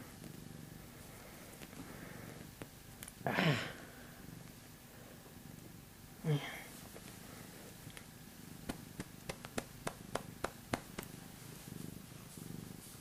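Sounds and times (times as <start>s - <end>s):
cat purring: 0.0s - 13.0s.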